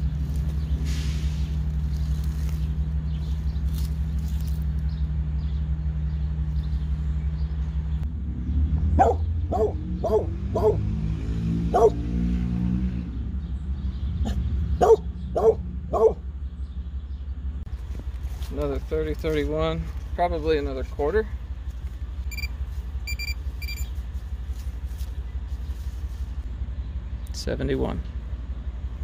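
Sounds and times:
dog barking: 9.0s - 10.9s, 11.7s - 12.1s, 14.2s - 16.2s.

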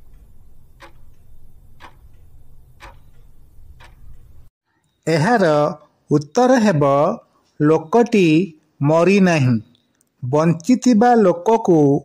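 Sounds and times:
clock ticking: 0.0s - 4.5s.

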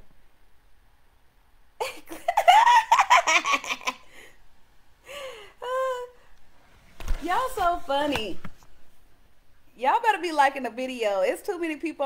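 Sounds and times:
woman laughing: 1.8s - 4.3s, 5.2s - 6.2s.

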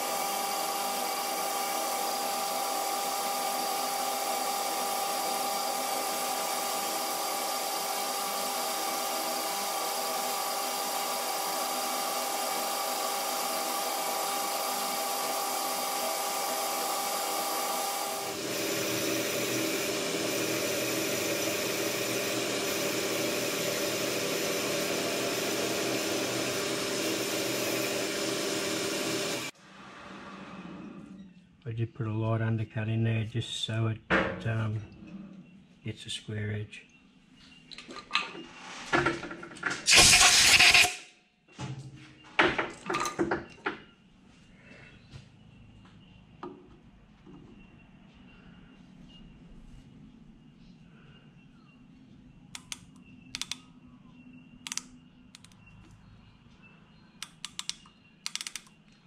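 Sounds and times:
metal lathe whine: 0.0s - 31.3s.

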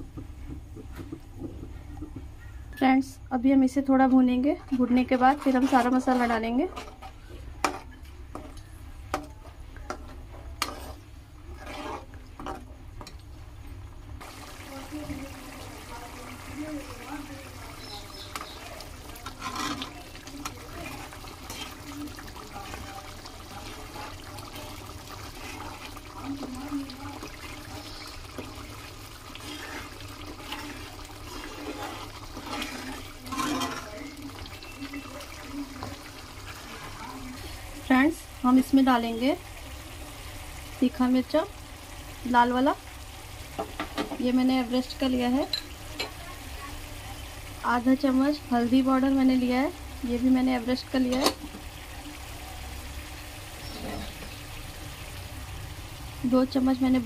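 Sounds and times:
spoon scraping frying paste: 4.6s - 8.7s, 9.9s - 12.7s, 17.2s - 37.6s.

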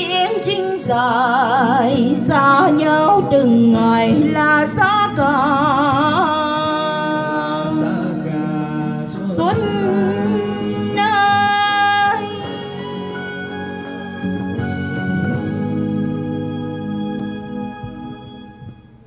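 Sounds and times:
woman singing ballad: 0.0s - 8.3s, 9.0s - 14.0s
backing music: 0.0s - 19.0s.

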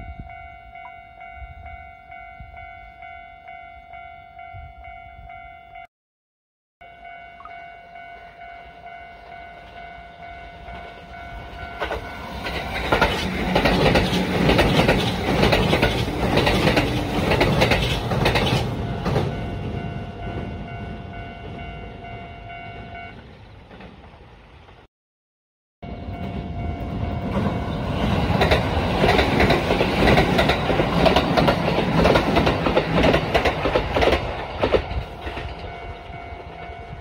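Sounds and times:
level-crossing bell ringing: 0.0s - 5.9s, 6.8s - 12.6s
train wheels clattering: 11.7s - 19.8s, 27.4s - 36.5s.

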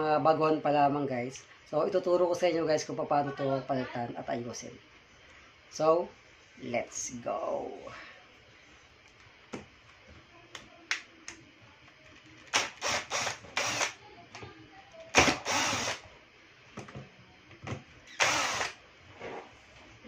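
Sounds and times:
cordless drill running: 12.5s - 14.0s, 15.1s - 16.0s, 18.1s - 18.8s.

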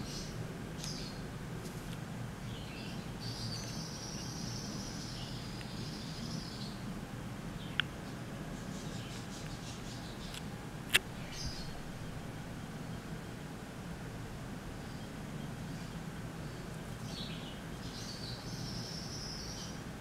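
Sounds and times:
steady low hum: 0.0s - 20.0s
faint high chirping: 2.4s - 6.9s, 14.7s - 19.9s.

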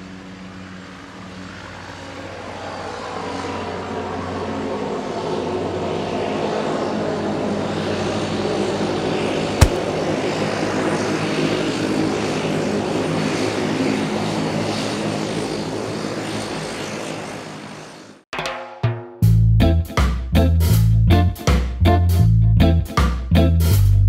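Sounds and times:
propeller airplane engine drone: 0.0s - 18.2s
sharp click: 9.6s - 9.9s.

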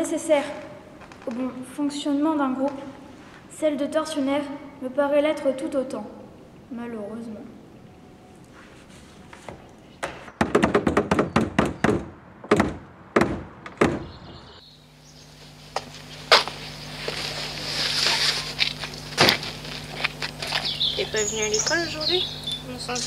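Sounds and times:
steady low hum: 0.0s - 10.2s, 12.1s - 23.0s
outdoor background noise: 0.0s - 23.0s.

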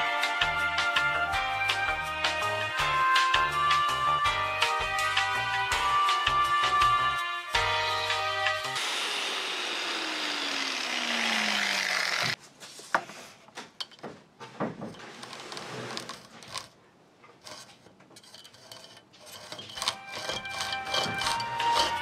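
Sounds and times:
hacksaw rasping through brass: 15.0s - 22.0s.

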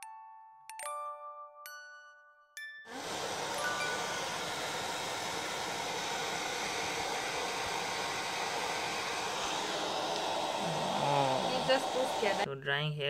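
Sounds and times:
hair dryer blowing: 2.9s - 12.5s.

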